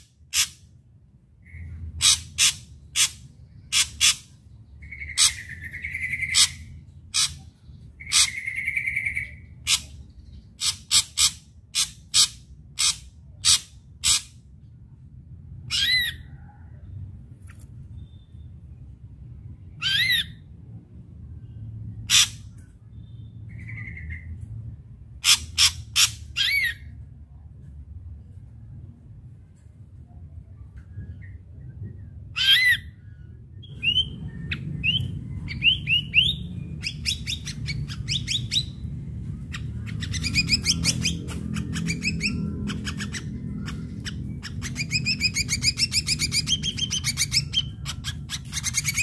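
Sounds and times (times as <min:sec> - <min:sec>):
harsh buzzy bird calls: 0:00.0 - 0:00.6, 0:01.4 - 0:14.4
whistled bird notes: 0:17.9 - 0:18.6.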